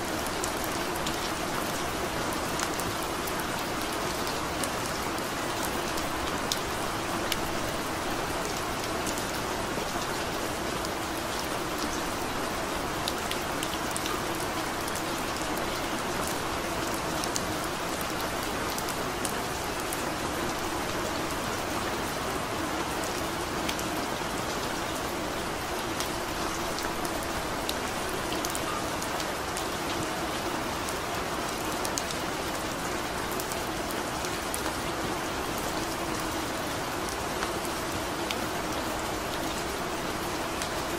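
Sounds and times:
sharp ticks of raindrops: 0.1 - 40.9.

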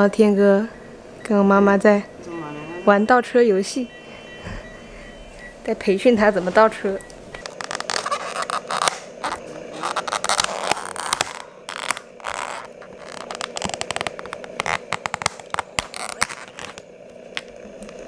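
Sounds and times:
plastic lid crackling and clicking: 7.4 - 16.8
plastic scraping: 7.4 - 16.8.

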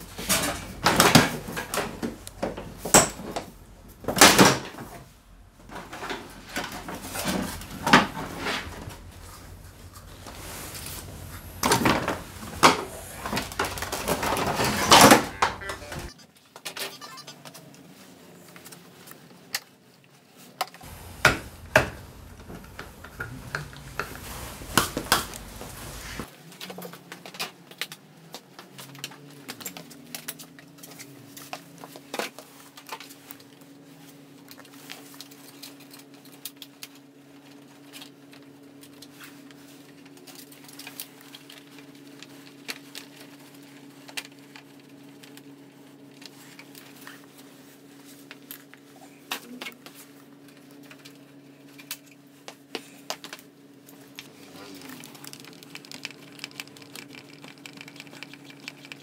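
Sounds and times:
steady low hum: 0.0 - 16.2, 20.8 - 26.3.

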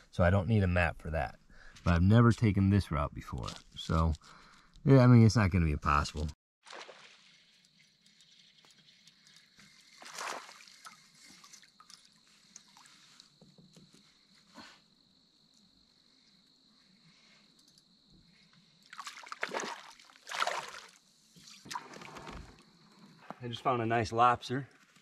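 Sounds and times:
water sloshing and trickling: 6.6 - 13.8, 18.8 - 22.7
water swishes: 9.7 - 13.0, 18.9 - 22.5.

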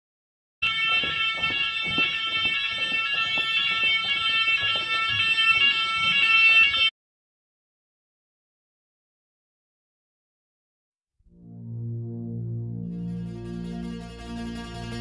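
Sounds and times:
fire alarm droning tones: 0.6 - 6.9.

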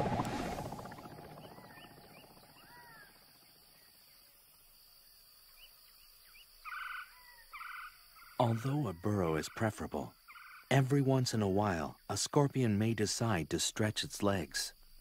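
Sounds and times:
low rumble: 0.0 - 2.8.

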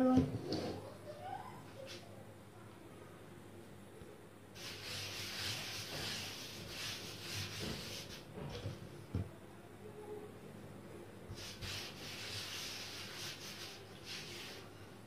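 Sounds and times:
hand swishing on pasta dough: 4.6 - 8.6, 11.3 - 14.8.

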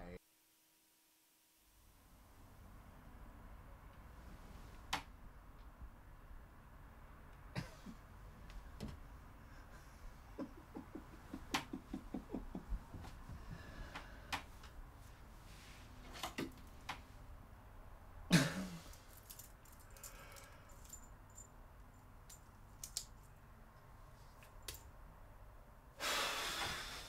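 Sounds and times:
man laughing softly: 7.5 - 8.1, 9.5 - 13.3
clicks and knocks of small objects: 22.2 - 23.3.

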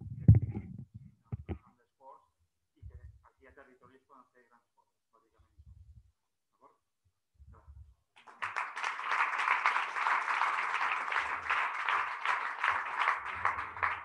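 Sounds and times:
audience applauding: 8.2 - 14.0.

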